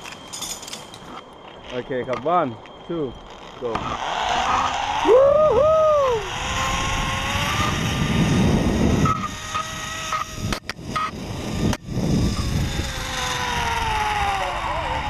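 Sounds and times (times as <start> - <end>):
pulleys whining on steel cable: 0.0 - 15.0
wind rushing past microphone: 4.0 - 15.0
person whooping: 5.0 - 6.3.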